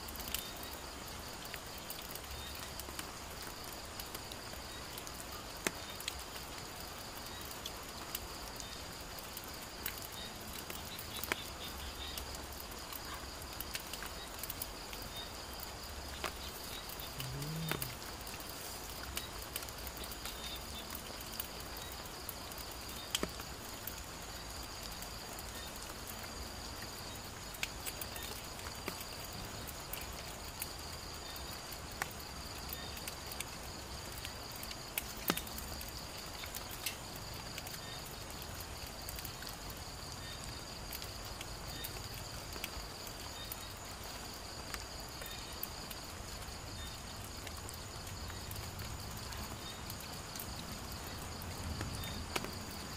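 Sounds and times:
night insects trilling: 0:00.0 - 0:52.9.

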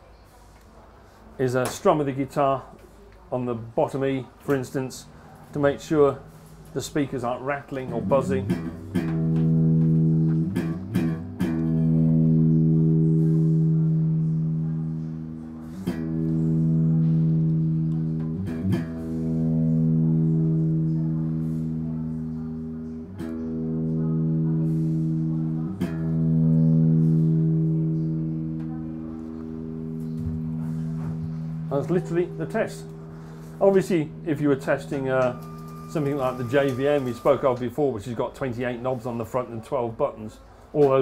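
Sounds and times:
electric guitar strums: 0:04.5 - 0:37.4.

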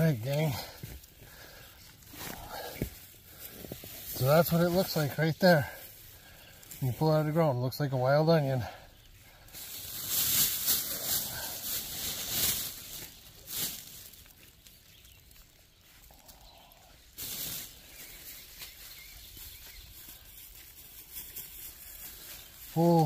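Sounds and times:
hands digging through soil: 0:00.0 - 0:08.6, 0:09.4 - 0:23.0
plastic bag crinkling: 0:09.3 - 0:23.0.

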